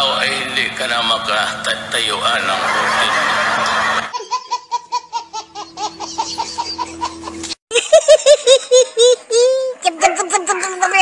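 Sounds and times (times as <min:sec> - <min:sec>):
crowd noise: 0:00.0 - 0:04.1
baby laughing: 0:04.1 - 0:09.8.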